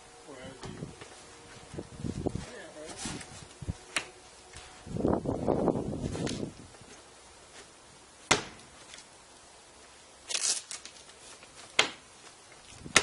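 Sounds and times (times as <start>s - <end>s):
rustling scrape of straps: 1.0s - 3.8s, 5.8s - 7.7s, 10.3s - 11.7s.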